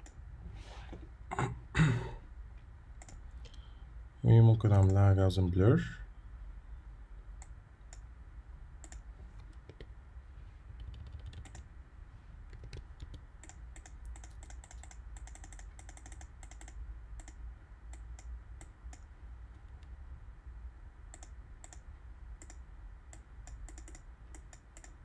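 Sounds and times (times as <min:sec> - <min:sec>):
faint low hum: 0:00.0 - 0:25.0
computer keys clicking: 0:03.0 - 0:03.6, 0:08.8 - 0:09.9, 0:10.8 - 0:11.7, 0:12.5 - 0:19.9, 0:21.1 - 0:25.0.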